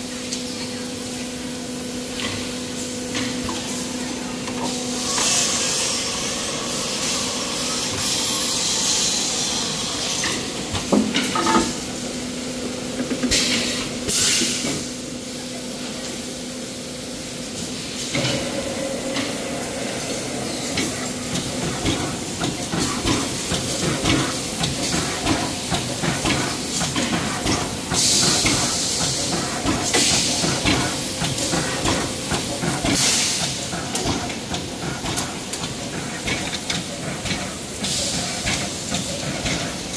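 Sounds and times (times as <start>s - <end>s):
steady machine hum: 15.0s - 36.2s
compressed-air hiss: 16.0s - 33.8s.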